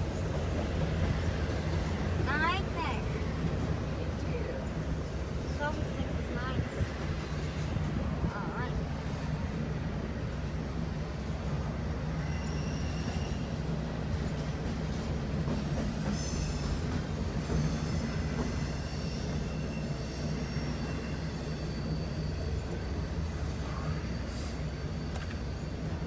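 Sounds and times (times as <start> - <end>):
train wheels rumbling on rail: 0.0 - 26.0
faint high wheel squeal: 12.0 - 14.7, 15.9 - 26.0.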